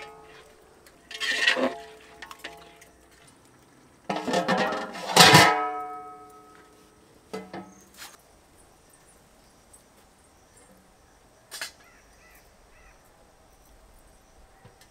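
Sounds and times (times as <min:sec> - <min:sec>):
metal ladle scraping in pot: 0:00.0 - 0:02.9, 0:04.1 - 0:05.8
metal lid clattering and ringing: 0:04.1 - 0:06.5.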